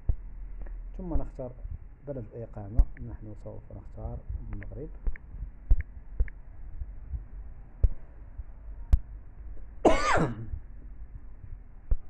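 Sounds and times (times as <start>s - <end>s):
low background rumble: 0.0s - 12.0s
sharp clicks: 4.5s - 6.4s
man clearing throat: 9.9s - 10.5s.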